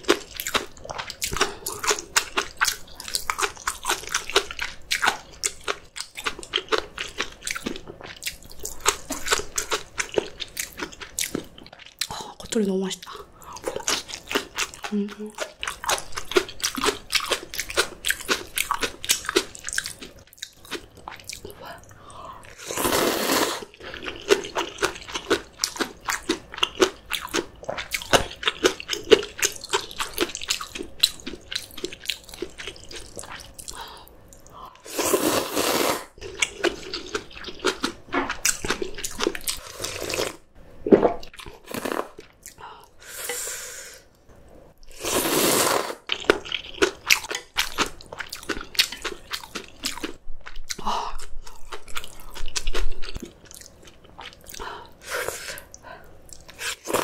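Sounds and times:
slurping noodles: 0:22.5 - 0:24.9, 0:34.8 - 0:37.1, 0:39.6 - 0:40.4, 0:44.9 - 0:46.1.

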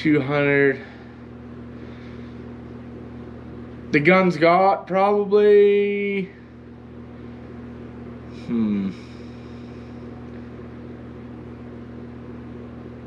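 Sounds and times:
low machinery hum: 0:00.0 - 0:13.0
man humming hmm: 0:08.3 - 0:10.0.

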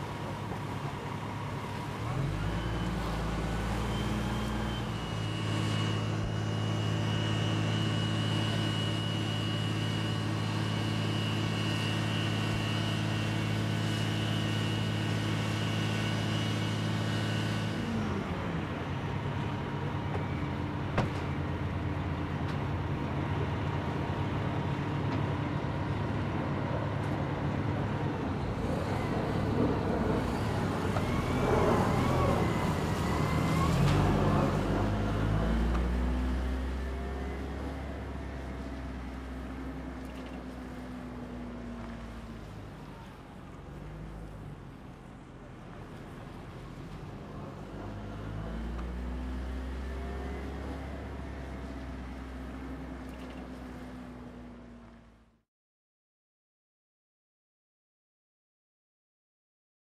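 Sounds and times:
heavy engine running: 0:00.0 - 0:55.4
high whine: 0:02.9 - 0:16.7.

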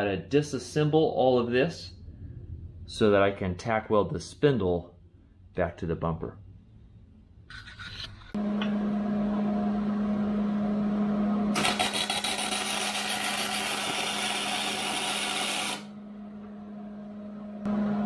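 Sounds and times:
steady low hum: 0:00.2 - 0:07.5, 0:15.8 - 0:18.0
welding arc: 0:11.6 - 0:15.9.

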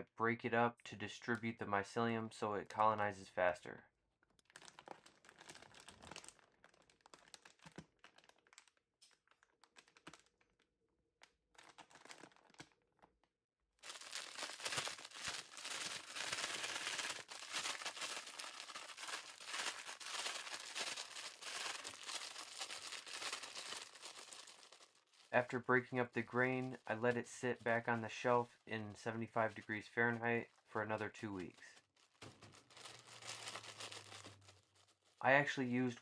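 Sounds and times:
plastic bag crinkling: 0:04.4 - 0:10.6, 0:11.5 - 0:13.1, 0:13.8 - 0:35.2
grain rustling in bag: 0:13.8 - 0:27.0, 0:31.4 - 0:35.2.

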